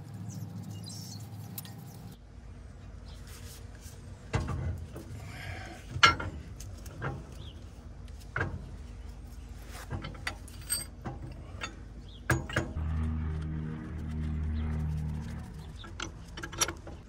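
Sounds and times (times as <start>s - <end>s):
metal parts and chain clanking: 5.9s - 7.5s, 9.7s - 17.0s.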